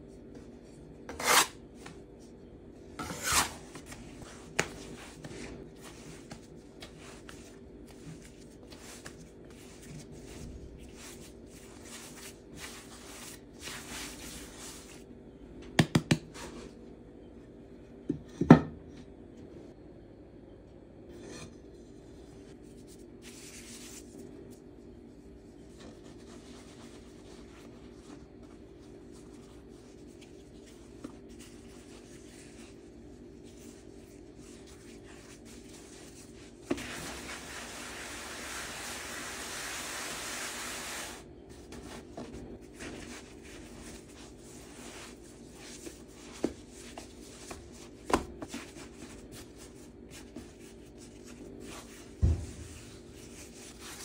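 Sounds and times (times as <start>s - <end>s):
steady low hum: 0.0s - 15.8s, 16.4s - 37.8s, 41.2s - 54.0s
dough rustling stretch: 3.2s - 15.1s, 25.6s - 38.9s, 41.5s - 54.0s
hands kneading dough: 3.6s - 15.1s, 22.4s - 39.2s, 41.5s - 54.0s.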